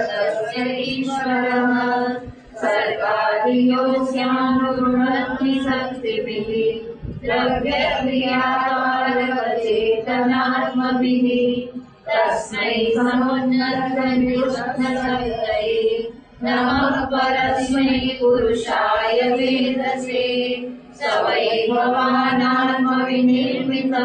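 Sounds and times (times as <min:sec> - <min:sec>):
woman chanting verses: 0:00.0 - 0:24.0.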